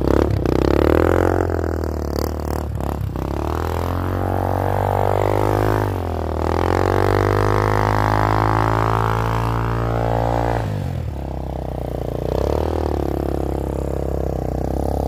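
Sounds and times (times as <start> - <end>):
motorcycle engine at high revs: 0.0 - 15.0.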